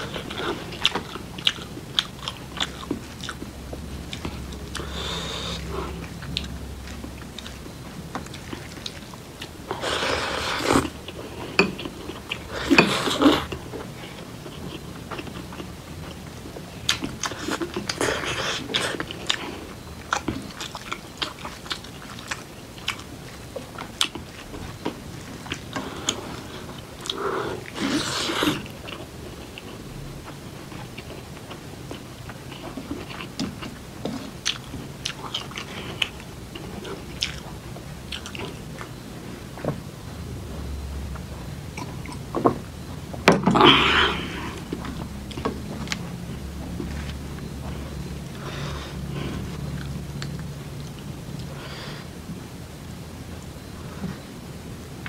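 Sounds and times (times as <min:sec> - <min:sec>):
person chewing: 0:00.0 - 0:42.4.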